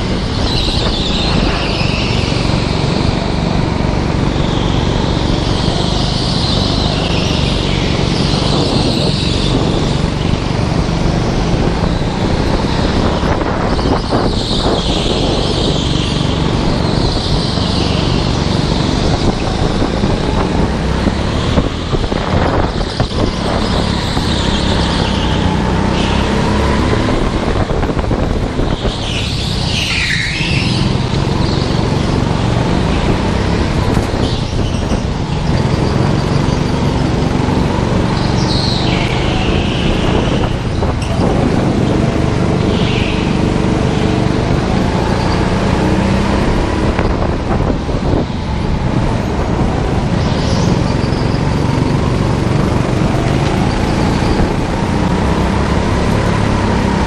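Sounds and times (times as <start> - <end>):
go-kart engine running: 0.0 - 57.0
tyres squealing on concrete: 11.7 - 27.4, 28.4 - 57.0.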